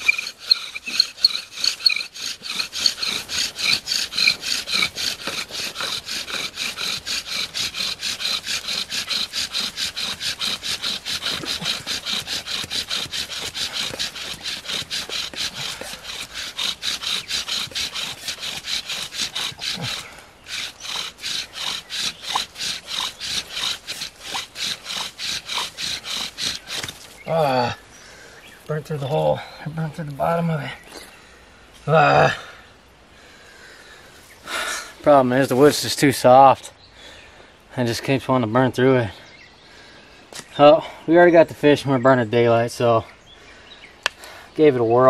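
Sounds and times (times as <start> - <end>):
bow drill rhythmic rasp: 0.0 - 27.6.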